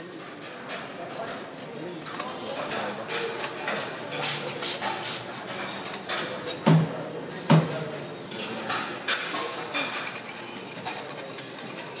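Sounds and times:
metal pans and utensils clanking: 0.1s - 12.0s.

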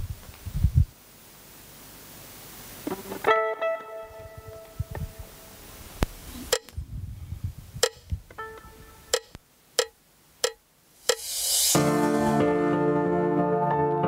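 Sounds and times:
sharp woody clicks: 7.8s - 8.2s, 9.1s - 11.3s.

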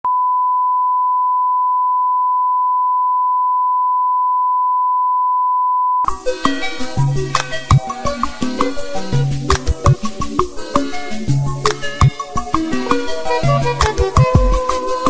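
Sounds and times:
upbeat music with percussion: 6.0s - 15.0s.

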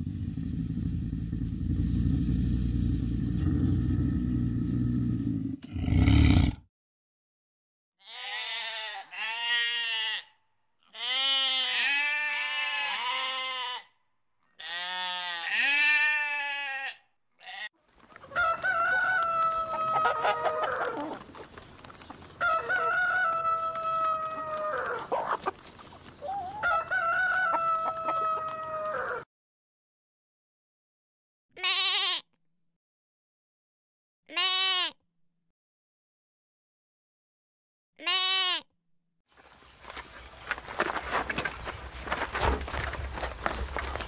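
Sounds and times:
sheep bleating: 8.0s - 13.9s, 14.6s - 17.7s, 31.6s - 32.2s, 34.3s - 35.0s, 38.0s - 38.6s
rooster crowing: 18.3s - 21.1s, 22.4s - 25.1s, 26.5s - 29.2s.

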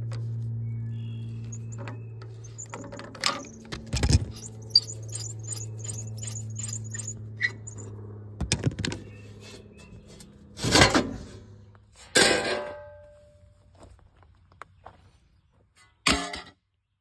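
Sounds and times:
steady low hum: 0.0s - 12.1s
metal plate clanging on gravel: 12.0s - 13.4s, 15.8s - 16.6s.

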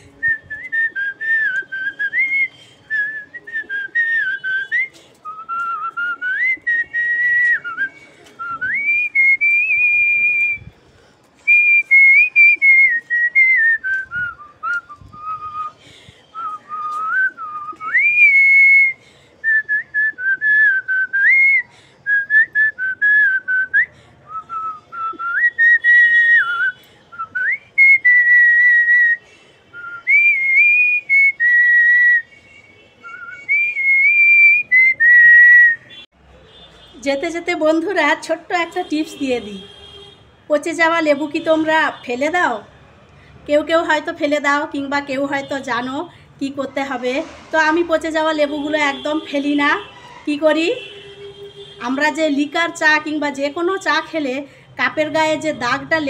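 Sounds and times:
woman whistling a tune: 0.2s - 10.8s, 11.4s - 32.4s, 33.0s - 36.0s.

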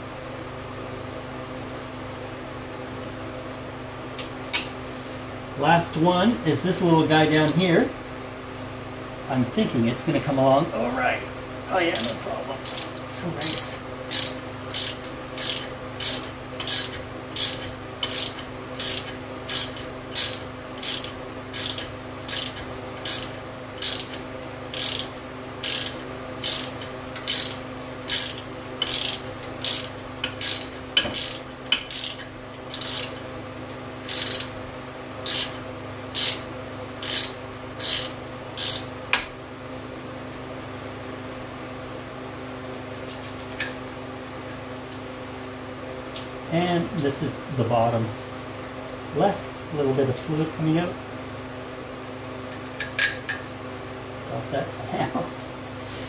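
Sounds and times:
ratchet wrench clicking: 12.0s - 33.2s, 34.1s - 34.5s, 35.2s - 36.4s, 37.0s - 38.9s.

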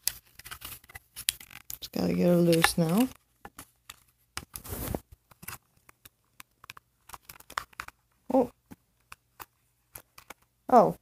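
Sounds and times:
plastic packaging clicks and scrapes: 0.0s - 8.0s.

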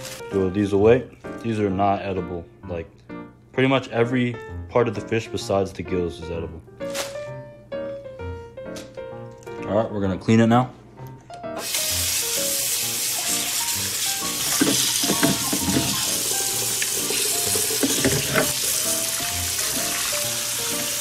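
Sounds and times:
faucet running into metal sink: 12.9s - 21.0s.

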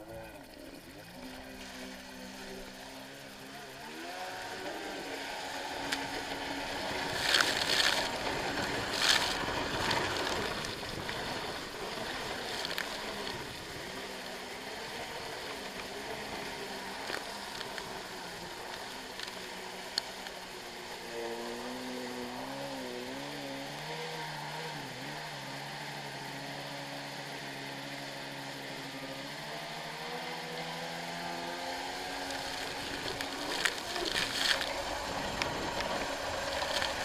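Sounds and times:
jet ski engine running: 0.0s - 37.0s
loud rushes of water: 3.8s - 23.1s, 29.4s - 37.0s
rushing spray: 29.7s - 37.0s
wind noise: 32.4s - 37.0s.

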